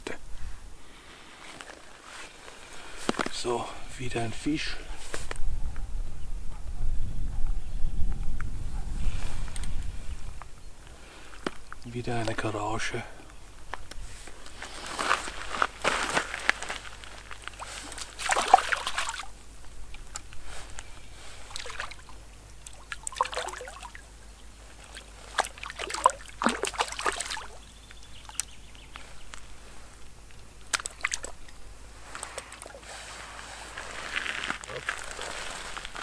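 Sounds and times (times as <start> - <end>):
water sloshing and splashing: 17.4 - 19.3, 21.4 - 27.6, 30.6 - 32.9.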